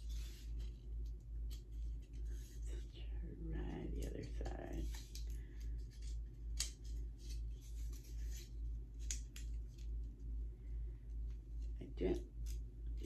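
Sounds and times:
low pulsing hum: 0.0 - 13.0.

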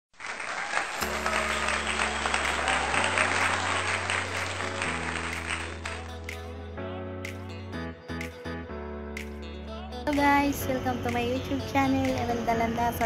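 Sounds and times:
applause: 0.1 - 6.4
intro music with bass chords: 1.0 - 12.9.

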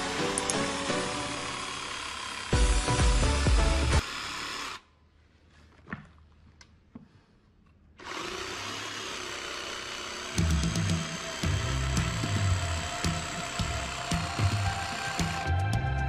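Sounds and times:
background music: 0.0 - 4.0, 10.4 - 16.0
jigsaw cutting plastic: 0.0 - 4.9, 8.0 - 15.5.

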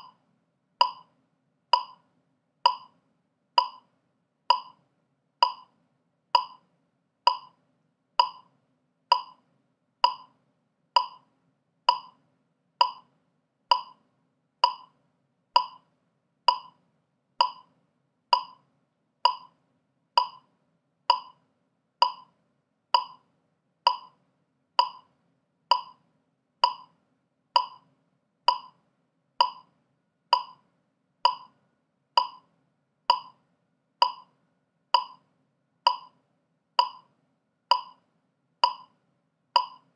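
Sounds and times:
metronome clicking: 0.8 - 1.1, 1.8 - 2.0, 2.7 - 2.9, 3.6 - 3.9, 4.5 - 4.8, 5.4 - 5.7, 6.4 - 6.6, 7.3 - 7.6, 8.2 - 8.5, 9.1 - 9.4, 10.0 - 10.3, 11.0 - 11.3, 11.9 - 12.2, 12.8 - 13.1, 13.7 - 14.0, 14.6 - 14.9, 15.6 - 15.8, 16.5 - 16.8, 17.4 - 17.7, 18.3 - 18.6, 19.3 - 19.5, 20.2 - 20.5, 21.1 - 21.4, 22.0 - 22.3, 23.0 - 23.2, 23.9 - 24.2, 24.8 - 25.1, 25.7 - 26.0, 26.6 - 27.0, 27.6 - 27.9, 28.5 - 28.8, 29.4 - 29.7, 30.3 - 30.6, 31.3 - 31.6, 32.2 - 32.4, 33.1 - 33.4, 34.0 - 34.3, 35.0 - 35.2, 35.9 - 36.2, 36.8 - 37.1, 37.7 - 38.0, 38.6 - 38.9, 39.6 - 39.9.

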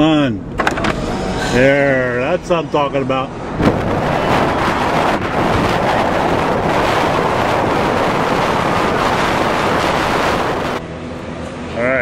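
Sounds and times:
wind rushing over microphone: 2.8 - 10.8.

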